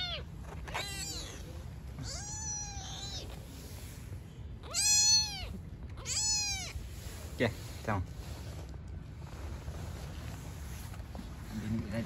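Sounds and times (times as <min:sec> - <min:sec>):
kitten meowing: 0:00.0 - 0:03.4, 0:04.6 - 0:06.8.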